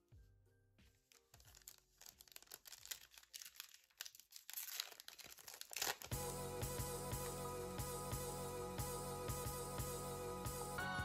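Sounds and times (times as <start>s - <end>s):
foil wrapper crinkling and tearing: 1.0s - 6.2s
background music: 6.1s - 11.0s.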